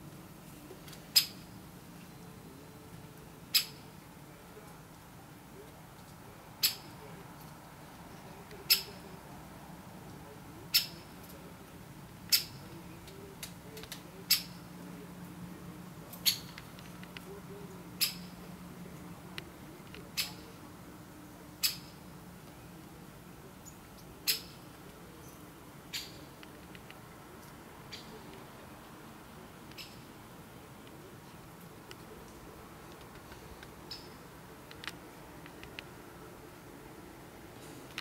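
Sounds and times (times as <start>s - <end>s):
woodpecker kik calls: 1.1s - 1.4s, 3.5s - 3.9s, 6.6s - 7.0s, 8.6s - 9.0s, 10.7s - 11.1s, 12.3s - 12.6s, 14.2s - 14.6s, 16.2s - 17.0s, 18.0s - 18.4s, 21.6s - 22.0s, 23.6s - 26.4s, 27.9s - 28.3s, 29.7s - 30.1s, 33.8s - 34.3s.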